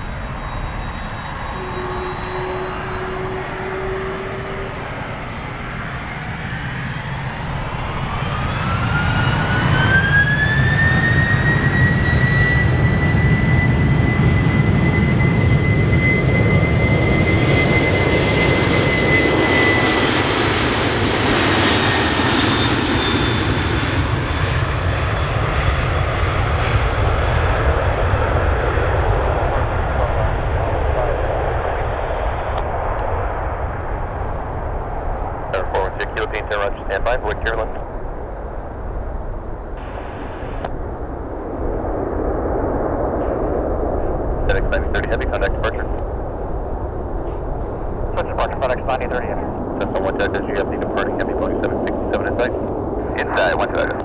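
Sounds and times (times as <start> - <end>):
loud engine rumble: 0.0 - 6.0
jet engine high whine: 0.0 - 54.0.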